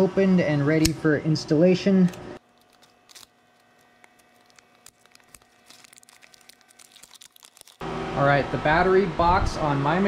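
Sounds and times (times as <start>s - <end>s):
knife cutting plastic: 2.4s - 7.8s
plastic packaging crinkling: 2.4s - 7.8s.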